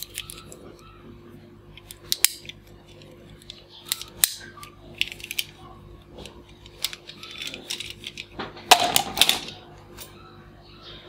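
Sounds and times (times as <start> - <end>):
plastic toy handcuffs rattling: 0.0 - 0.7, 1.7 - 9.6.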